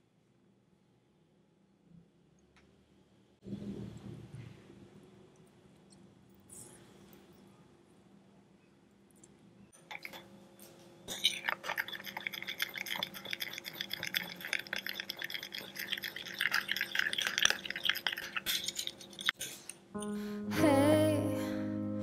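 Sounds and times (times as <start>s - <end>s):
spoon stirring sauce: 11.1s - 19.6s.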